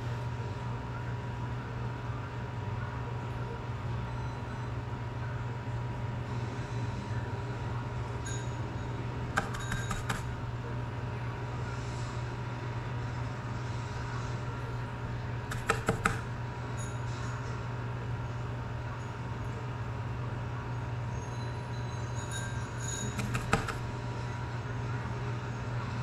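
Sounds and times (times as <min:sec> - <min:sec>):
small tools clicking: 0:15.5 - 0:16.2, 0:23.2 - 0:23.9.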